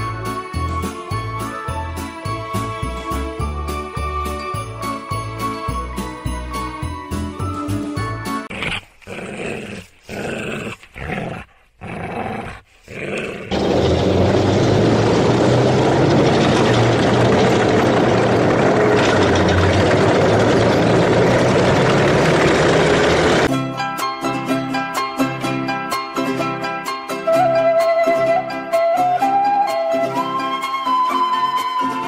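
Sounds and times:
tank diesel engine and tracks: 13.5s - 23.5s.

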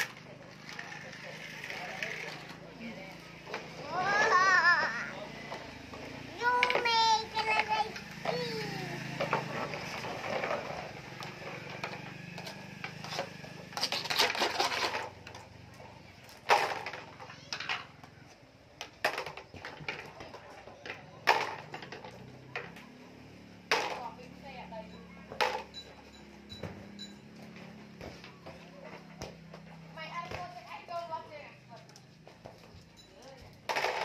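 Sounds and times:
toys rattling on wooden floor: 0.0s - 2.8s, 5.5s - 8.6s, 9.2s - 15.5s, 16.2s - 18.2s, 18.8s - 22.9s, 23.7s - 25.9s, 32.4s - 34.0s.

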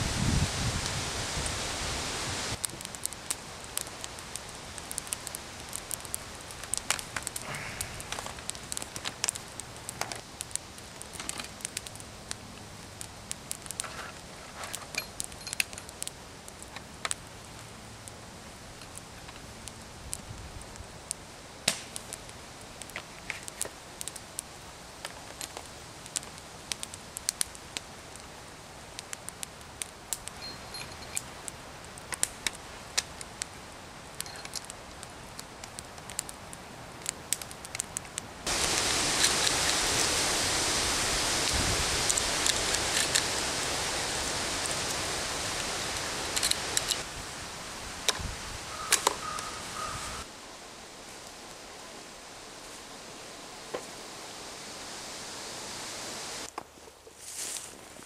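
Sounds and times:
loud rushing hiss: 0.0s - 8.8s, 38.4s - 56.5s
campfire crackling: 0.0s - 58.0s.

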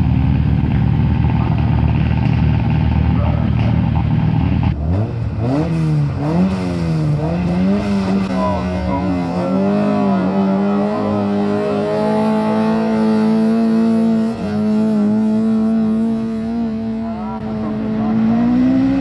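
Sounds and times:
rally car engine high revs: 1.3s - 19.0s.

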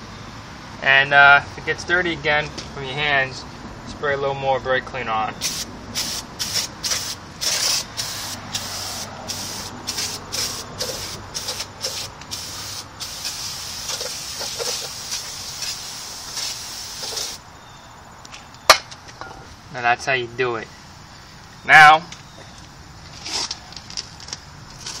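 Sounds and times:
aerosol can spraying: 5.4s - 17.4s.

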